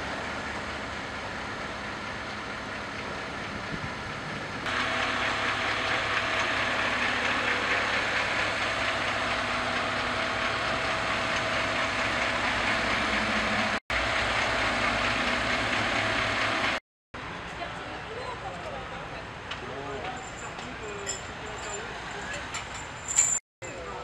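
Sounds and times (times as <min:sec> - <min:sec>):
diesel engine idling: 0:00.0 - 0:16.8.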